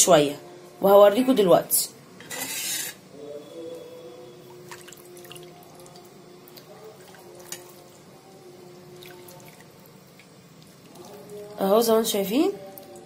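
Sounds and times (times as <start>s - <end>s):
liquid dripping and splashing: 4.6s - 8.0s, 8.8s - 11.6s.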